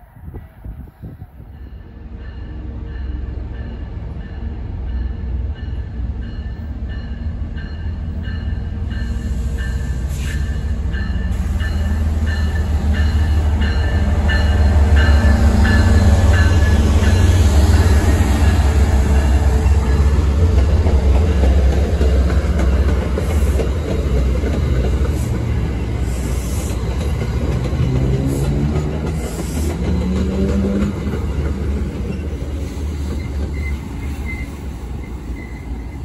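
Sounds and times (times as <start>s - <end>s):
locomotive bell ringing: 1.6s - 20.3s.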